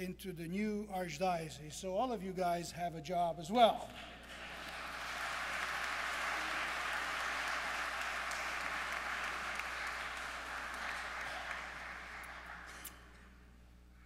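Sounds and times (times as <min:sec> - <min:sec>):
congregation applauding: 0:04.0 - 0:13.3.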